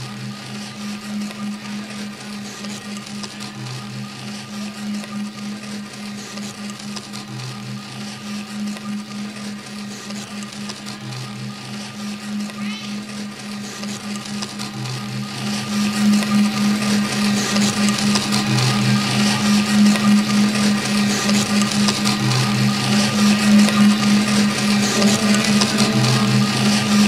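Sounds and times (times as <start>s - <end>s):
electronic noise music: 25.0s - 27.0s.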